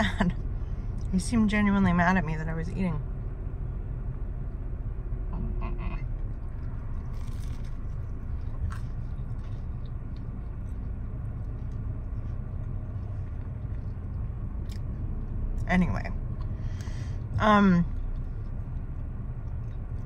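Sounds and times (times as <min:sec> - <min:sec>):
car cabin rumble: 0:00.0 - 0:20.0
person chewing food: 0:06.1 - 0:15.2.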